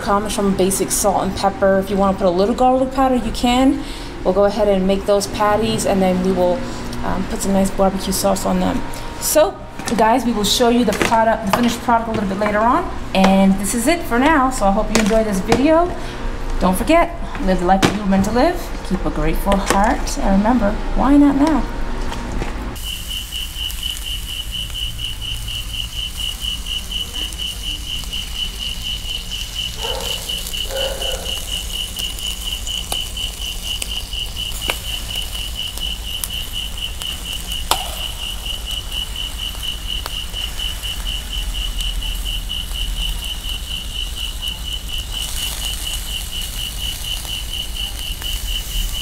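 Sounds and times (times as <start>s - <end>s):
insect pulsing trill: 22.8s - 49.0s
meat sizzling on a grill: 22.8s - 49.0s
sharp pops: 37.0s - 38.2s.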